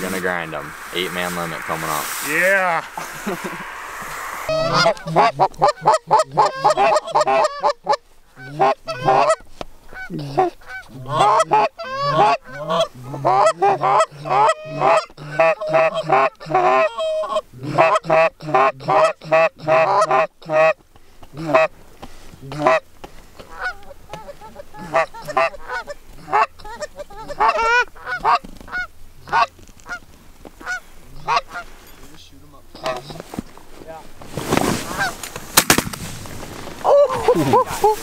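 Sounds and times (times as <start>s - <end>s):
goose call honks and clucks: 2.4s - 21.7s, 22.4s - 31.8s, 32.7s - 33.2s, 34.8s - 35.3s.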